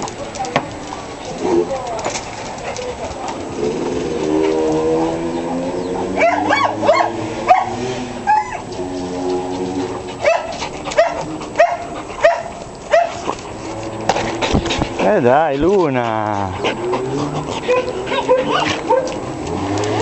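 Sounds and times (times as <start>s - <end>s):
dog yelping barks: 6.2s - 8.7s, 10.2s - 13.2s, 16.7s - 19.2s
dog whining: 6.2s - 8.8s, 15.6s - 19.2s.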